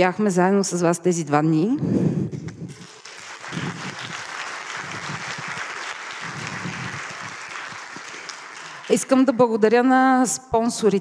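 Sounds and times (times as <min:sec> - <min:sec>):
audience applauding: 0:02.7 - 0:09.3.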